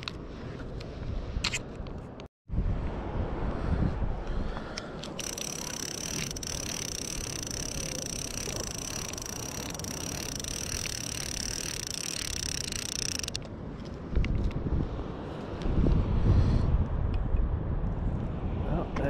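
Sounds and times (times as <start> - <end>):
wind rumble on microphone: 0.0 - 19.0
fishing reel whirring: 5.2 - 13.5.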